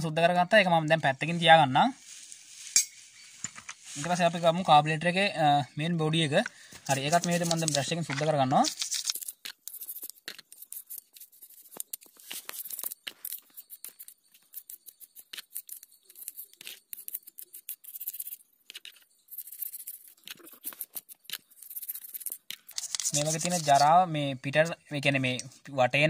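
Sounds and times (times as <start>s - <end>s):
small brush scrubbing metal: 6.9s - 8.0s, 8.6s - 24.0s.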